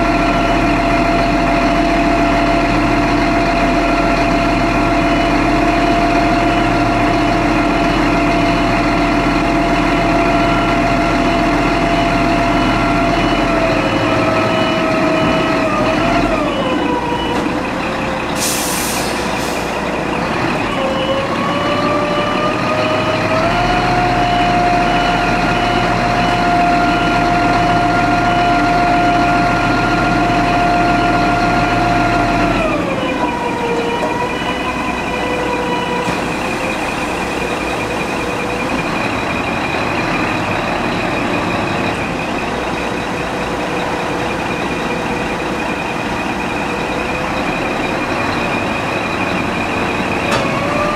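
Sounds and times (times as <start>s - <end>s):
truck engine whining: 0.0s - 50.9s
air hiss: 18.4s - 19.8s.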